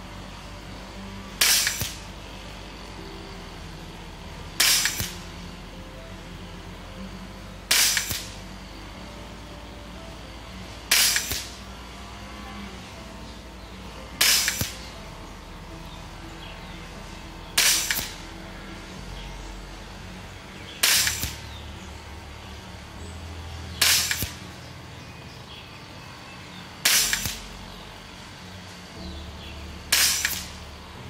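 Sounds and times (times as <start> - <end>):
air rifle shots: 1.4 - 2.0, 4.6 - 5.2, 7.7 - 8.4, 10.9 - 11.6, 14.2 - 14.9, 17.6 - 18.2, 20.8 - 21.4, 23.8 - 24.4, 26.8 - 27.5, 29.9 - 30.6.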